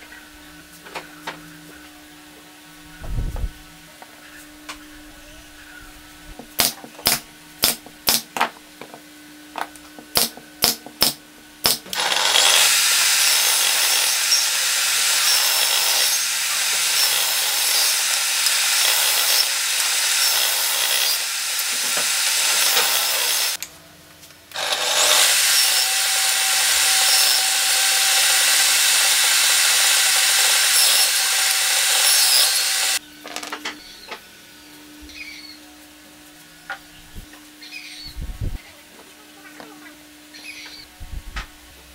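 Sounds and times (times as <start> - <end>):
table saw cutting wood: 11.7 - 23.6, 24.5 - 33.0.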